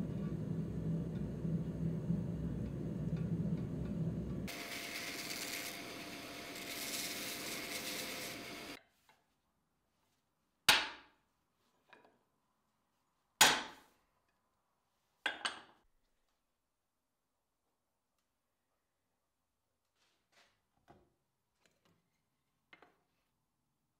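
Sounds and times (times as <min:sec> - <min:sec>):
belt grinder grinding wood: 0:04.5 - 0:08.8.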